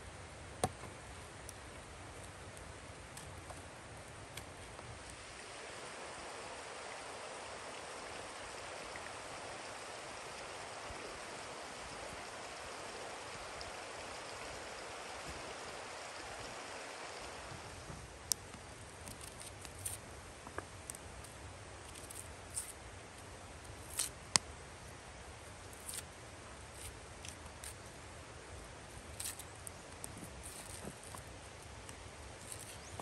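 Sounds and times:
stream rushing water: 0:05.1 - 0:18.2.

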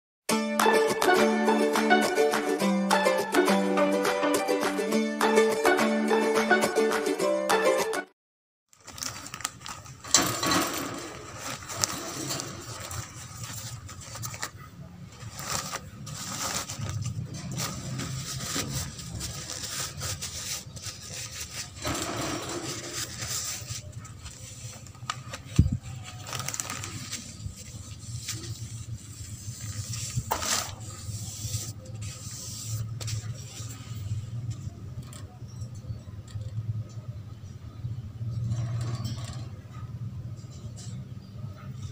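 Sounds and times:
intro music: 0:00.3 - 0:08.1.

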